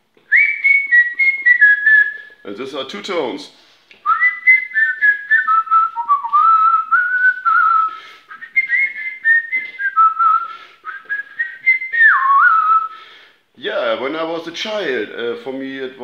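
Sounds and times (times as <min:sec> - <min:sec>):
man whistling two-note melody: 0:00.3 - 0:02.4, 0:04.1 - 0:12.9.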